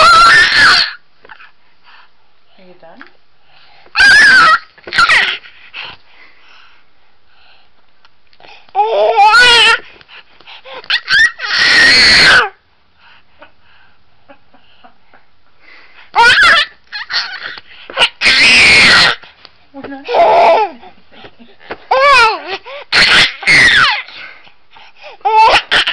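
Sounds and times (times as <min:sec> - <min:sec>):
baby shrieking happily: 0:00.0 - 0:01.0, 0:04.0 - 0:05.4, 0:08.8 - 0:09.8, 0:10.8 - 0:12.6, 0:16.2 - 0:19.2, 0:20.1 - 0:20.8, 0:21.9 - 0:24.2, 0:25.2 - 0:25.9.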